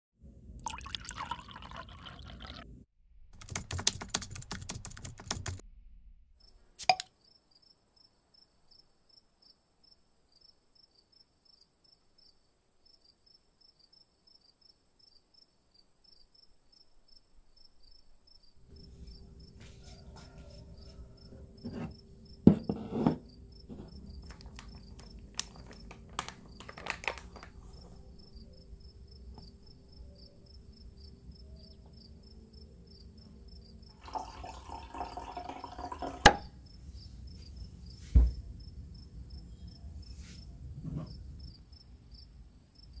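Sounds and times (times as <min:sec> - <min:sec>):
rapid insect-like chirping: 0:06.4 - 0:19.6, 0:27.6 - 0:33.9
canister knocking on counter: 0:22.5 - 0:24.4.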